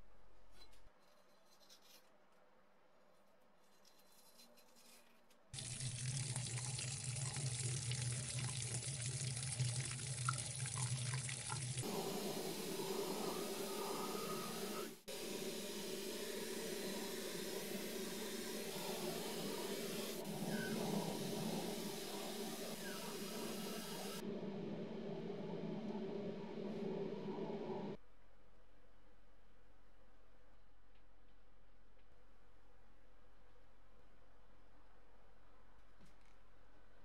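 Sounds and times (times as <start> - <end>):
tap water running into metal sink: 5.6 - 11.9.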